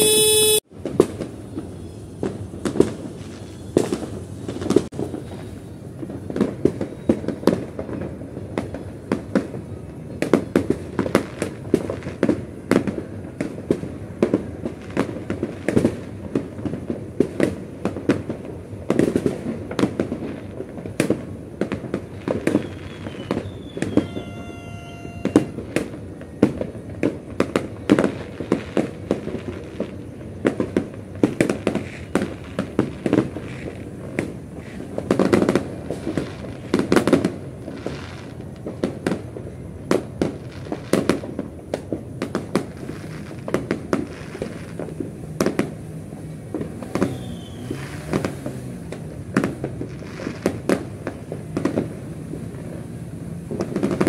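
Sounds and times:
firework whistling: 0.0s - 54.0s
fireworks and firecrackers banging: 0.0s - 54.0s.

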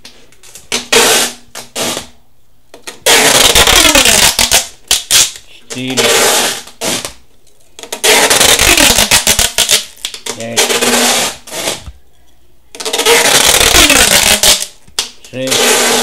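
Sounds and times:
packing tape ripping off roll: 0.4s - 2.2s, 2.8s - 5.4s, 6.0s - 7.2s, 7.8s - 11.9s, 12.8s - 16.0s.

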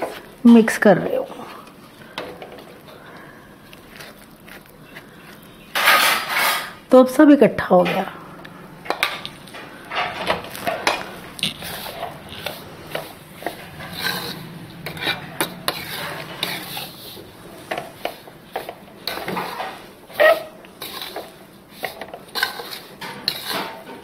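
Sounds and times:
metal spatula scraping a pan: 5.4s - 6.8s, 9.9s - 24.0s.

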